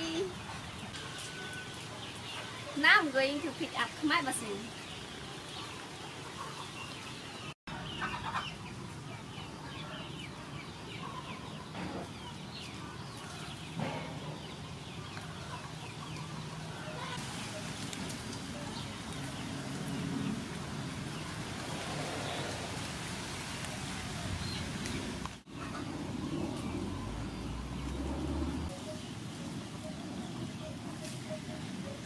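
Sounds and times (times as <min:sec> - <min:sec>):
small birds chirping: 0:00.0 - 0:22.7, 0:23.4 - 0:32.0
chickens clucking: 0:05.3 - 0:20.4, 0:24.8 - 0:32.0
leaves rustling: 0:15.2 - 0:32.0.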